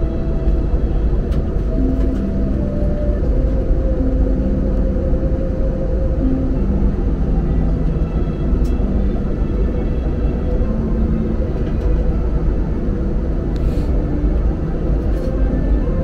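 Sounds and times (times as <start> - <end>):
jet engine cabin rumble: 0.0 - 16.0.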